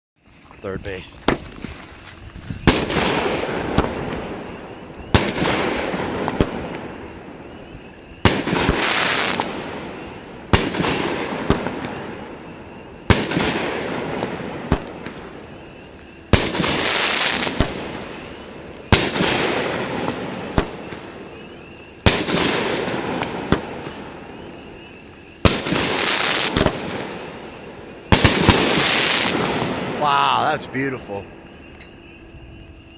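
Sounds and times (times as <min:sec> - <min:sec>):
firework crackling hiss: 0:00.2 - 0:15.5, 0:16.3 - 0:18.2, 0:25.4 - 0:27.4, 0:28.1 - 0:31.2
firework bangs: 0:01.2 - 0:02.0, 0:02.6 - 0:15.5, 0:16.3 - 0:21.3, 0:22.0 - 0:24.2, 0:25.4 - 0:27.4, 0:28.1 - 0:31.2.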